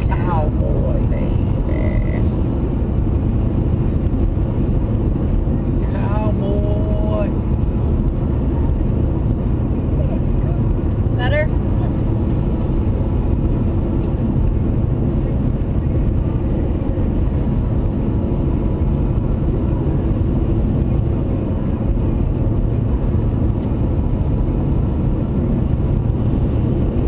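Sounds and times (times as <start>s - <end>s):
car road and engine noise: 0.0s - 27.0s.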